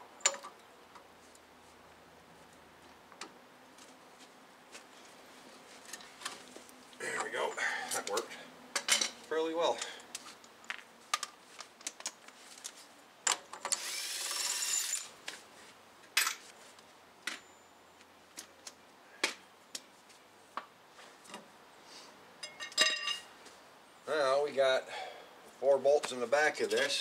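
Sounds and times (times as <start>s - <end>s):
tools clinking and knocking: 0.2s - 0.7s, 7.2s - 9.2s, 16.2s - 16.5s, 22.4s - 23.3s
impact wrench spinning: 13.7s - 15.1s.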